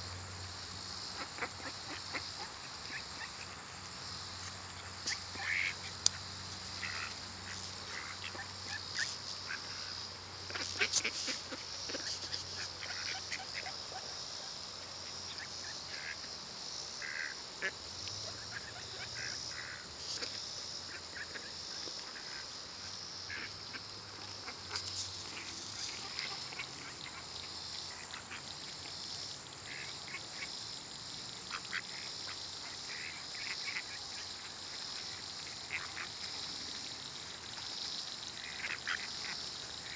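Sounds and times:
ducks quacking: 1.2 - 3.7, 4.8 - 14.2, 15.1 - 16.3, 17.0 - 22.5, 23.2 - 27.3, 35.4 - 36.2, 38.4 - 39.9.

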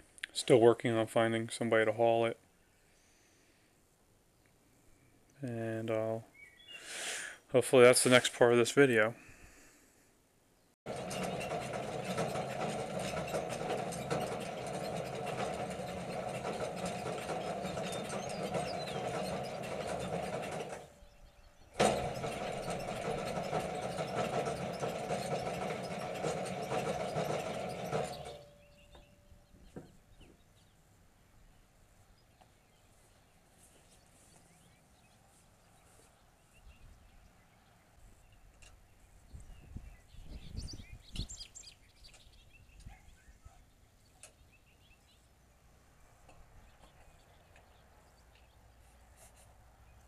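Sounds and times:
starter engaging clunk: 10.9 - 21.1, 21.7 - 30.4
diesel engine cranking: 10.9 - 29.9
starter spinning down whine: 10.9 - 29.9.

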